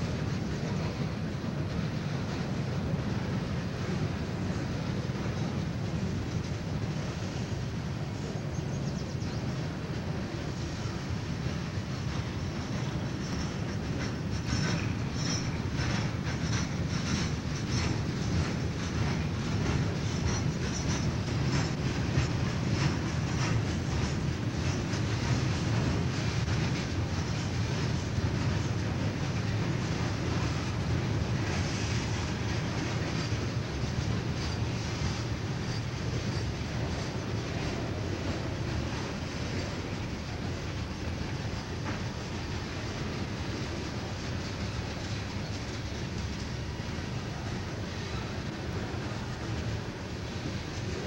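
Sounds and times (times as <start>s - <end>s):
freight train rumbling past: 0.0s - 51.0s
wheels clicking over rail joints: 10.1s - 51.0s.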